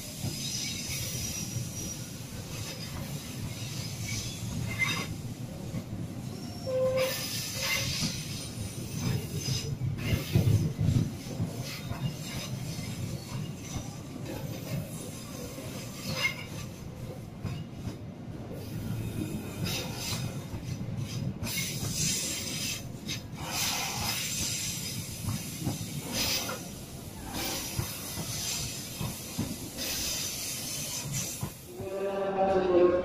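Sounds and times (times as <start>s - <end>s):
high-pitched hiss and squeal: 0.0s - 5.1s, 6.2s - 10.6s, 21.4s - 31.6s
train wheels rumbling on rail: 0.0s - 33.0s.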